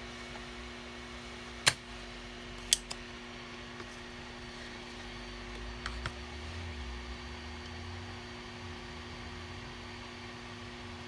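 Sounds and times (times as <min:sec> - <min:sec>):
hot air station fan hum and hiss: 0:00.0 - 0:11.0
solder sucker snapping: 0:01.6 - 0:01.8, 0:02.6 - 0:03.0.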